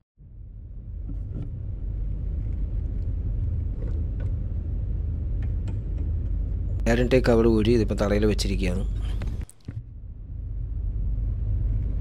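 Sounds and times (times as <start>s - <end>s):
steady low rumble: 0.2s - 12.0s.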